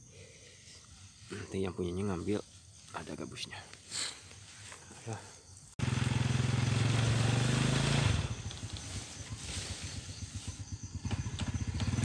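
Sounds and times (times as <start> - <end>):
small motorcycle engine: 5.8 - 12.0.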